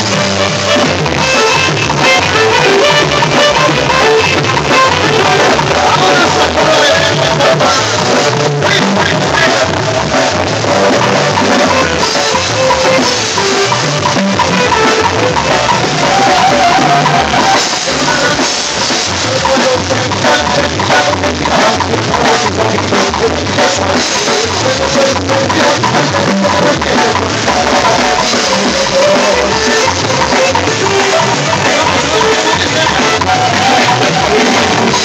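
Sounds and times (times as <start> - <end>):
saxophone melody: 0.0 - 18.2
keyboard melody: 0.0 - 22.8, 23.6 - 35.0
drum kit beat: 0.0 - 35.0.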